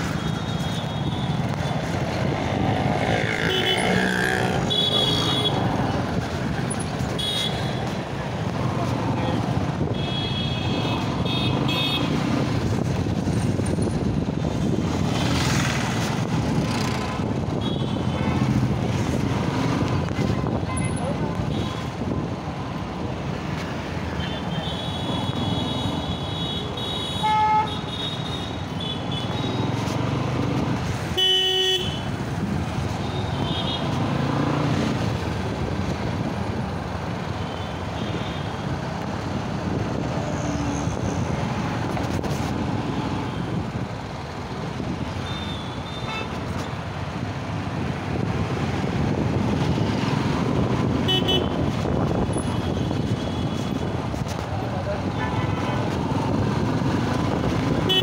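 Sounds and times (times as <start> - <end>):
city traffic engines and road noise: 0.0 - 58.0
vehicle horn toots: 51.0 - 51.6.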